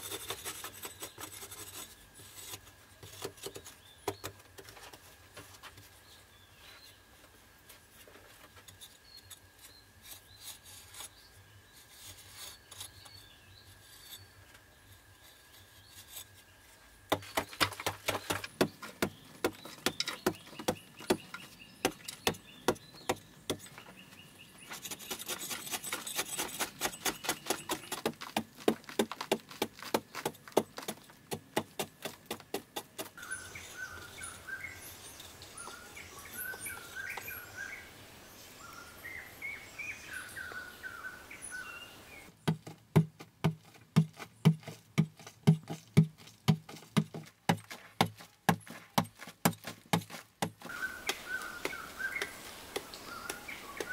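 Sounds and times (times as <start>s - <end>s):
digging tool scraping earth: 0.0s - 5.9s, 7.8s - 37.4s, 42.4s - 53.9s
digging tool striking clay: 17.1s - 23.8s, 24.8s - 33.2s, 42.4s - 53.9s.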